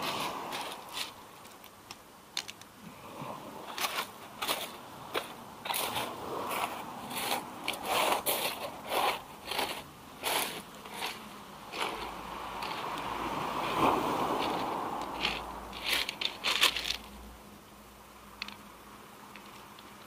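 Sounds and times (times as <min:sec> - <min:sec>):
pebbles clattering in surf: 0:00.0 - 0:01.2, 0:03.7 - 0:17.0
wave washing: 0:00.0 - 0:01.4, 0:02.8 - 0:17.3.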